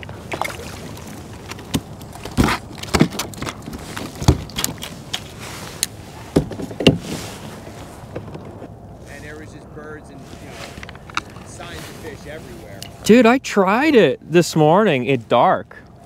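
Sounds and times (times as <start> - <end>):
knocks on plastic kayak deck: 6.3 - 7.2.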